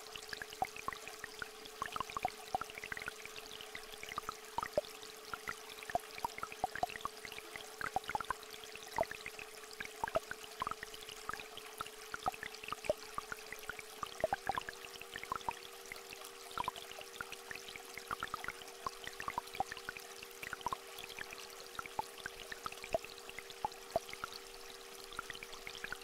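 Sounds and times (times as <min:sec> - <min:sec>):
small stream flowing: 0:00.0 - 0:26.0.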